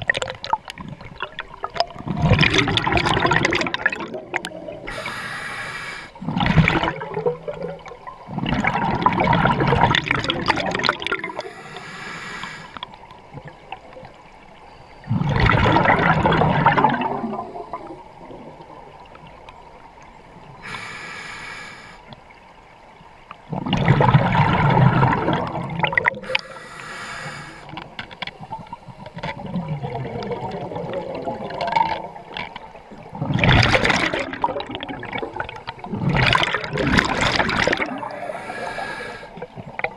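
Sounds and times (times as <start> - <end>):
regulator hissing inhale: 4.9 - 6.2, 11.3 - 12.8, 20.6 - 22.1, 26.2 - 27.8, 38.0 - 39.4
exhaust bubbles rushing: 15.1 - 17.5, 33.1 - 38.2.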